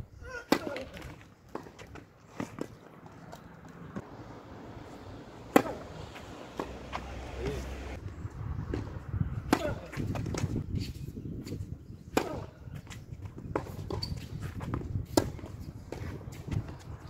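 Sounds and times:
racquet striking tennis ball: 0:05.4 - 0:07.6, 0:08.7 - 0:10.6
tennis ball bouncing: 0:05.4 - 0:08.0, 0:08.7 - 0:10.6, 0:12.1 - 0:16.6.

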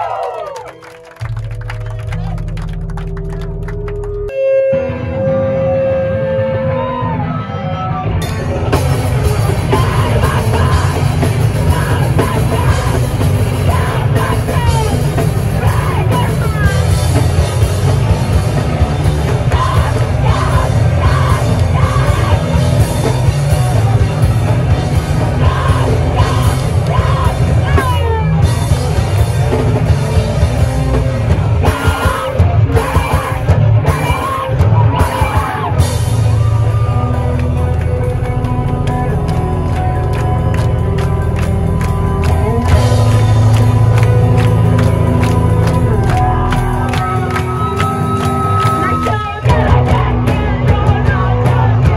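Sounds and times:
drums: 0:00.0 - 0:51.9
distorted guitars: 0:00.8 - 0:51.9
person yelling vocals: 0:13.6 - 0:16.8, 0:19.4 - 0:22.6, 0:25.4 - 0:28.4.

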